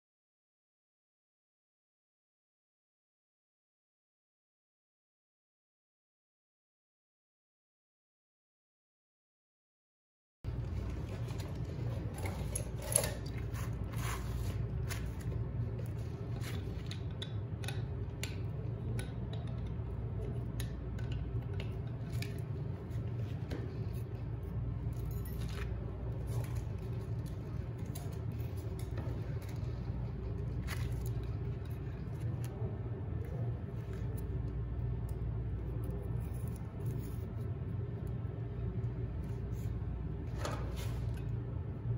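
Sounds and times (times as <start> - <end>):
steady low hum: 10.5 - 41.9
metal blade clicks and scraping: 12.2 - 15.0.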